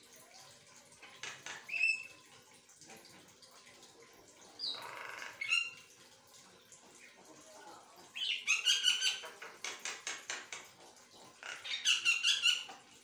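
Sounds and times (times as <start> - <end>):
bird harsh chatter: 11.3 - 12.7.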